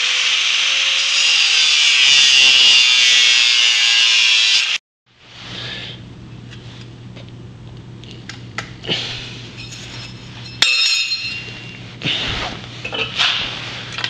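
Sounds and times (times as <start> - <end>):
steady low hum: 5.1 - 14.0
metal plate clinking: 9.6 - 11.8.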